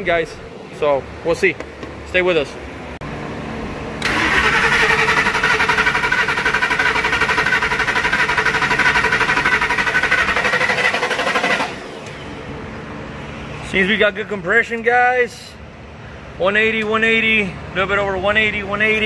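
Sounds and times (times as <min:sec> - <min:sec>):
engine cranking without firing: 0:04.0 - 0:12.2.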